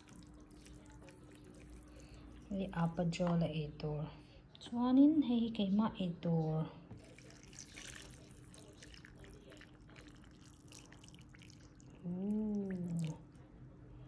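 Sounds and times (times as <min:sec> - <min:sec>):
broth trickling into bowl: 0:00.0 - 0:03.0, 0:07.0 - 0:13.4.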